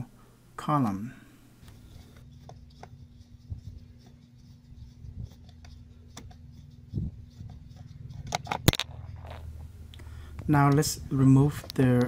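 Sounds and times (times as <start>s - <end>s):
low steady hum: 0.0s - 12.0s
screwdriver clicks and scrapes: 7.8s - 9.5s.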